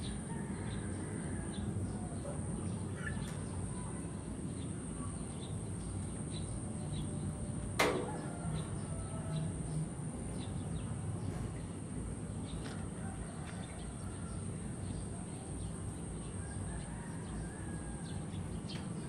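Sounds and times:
faint bird chirps: 2.0s - 7.1s
sharp click: 7.8s - 8.3s.

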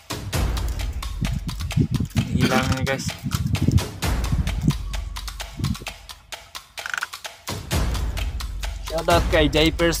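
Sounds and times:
fishing line clicks and knocks: 3.1s - 7.6s.

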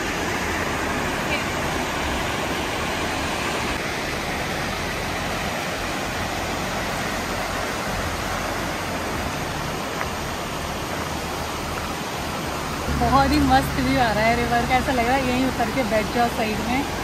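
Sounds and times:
river rushing: 0.0s - 17.0s.

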